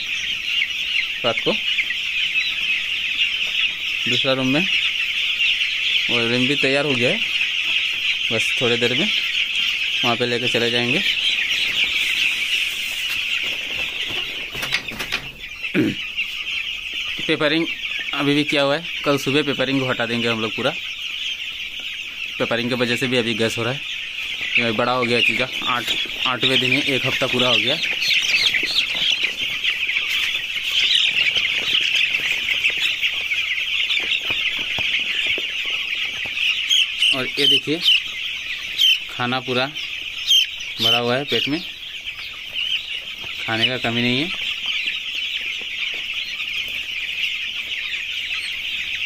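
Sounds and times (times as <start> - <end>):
chicks peeping: 0.0 - 49.0.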